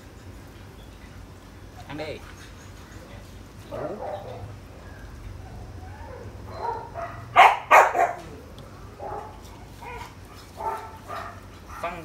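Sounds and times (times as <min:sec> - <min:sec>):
dog barking: 0:03.7 - 0:04.5, 0:05.5 - 0:08.4, 0:09.0 - 0:12.0
dog whining: 0:03.7 - 0:08.5.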